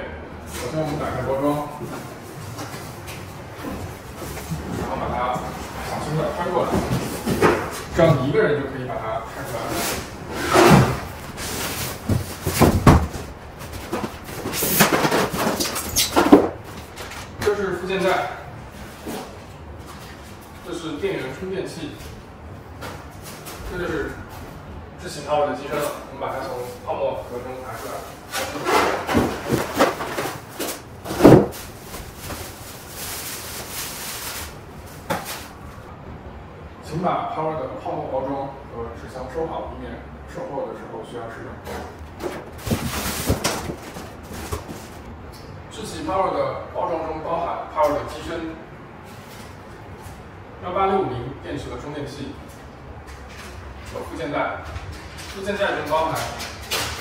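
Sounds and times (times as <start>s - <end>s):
plastic wrapping rustling: 9.4s - 18.2s, 25.7s - 35.9s, 41.9s - 45.1s
cardboard box scraping and bumping: 42.5s - 44.9s.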